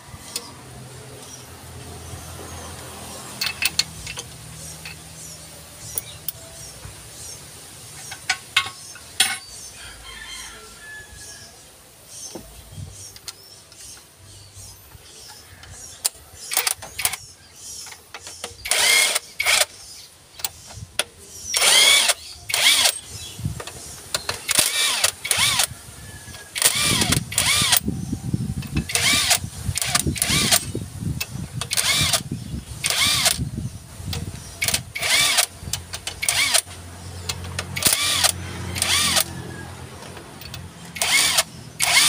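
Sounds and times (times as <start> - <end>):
impact wrench motor whirring: 16.5 - 17.2, 18.6 - 19.8, 21.6 - 23.1, 24.5 - 25.7, 26.6 - 27.9, 28.6 - 30.8, 31.6 - 33.5, 34.6 - 35.5, 36.2 - 36.7, 37.6 - 39.3, 41.0 - 42.0.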